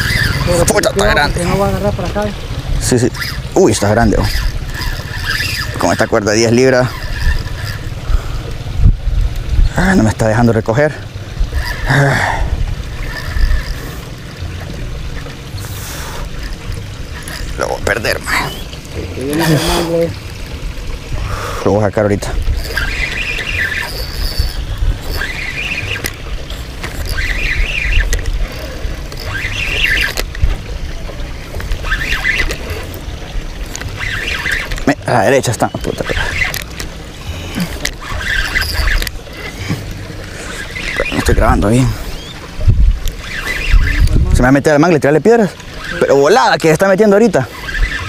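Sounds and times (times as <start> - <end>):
wind buffeting microphone: 0.0 - 15.2, 16.3 - 44.8
fishing reel whirring: 0.0 - 48.0
wind rumble: 7.1 - 10.2, 36.2 - 44.6.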